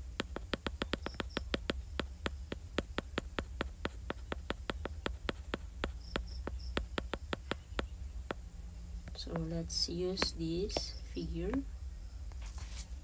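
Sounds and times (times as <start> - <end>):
stylus clicking on glass screen: 0.2 - 7.9.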